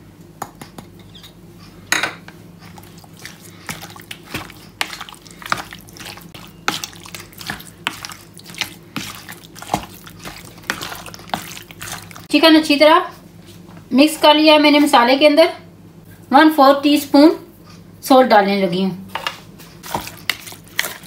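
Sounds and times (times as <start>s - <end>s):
spatula squelching in bowl: 2.6s - 12.3s, 19.2s - 21.0s.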